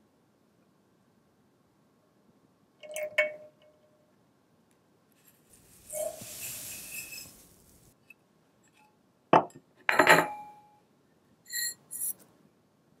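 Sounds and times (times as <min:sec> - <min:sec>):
sugar pouring into pan: 0:05.2 - 0:08.0
clink against metal pan: 0:09.4 - 0:10.6.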